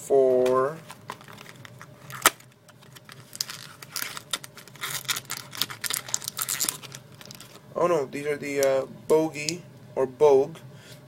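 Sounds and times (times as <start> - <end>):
plastic packaging crinkling: 0.8 - 7.7.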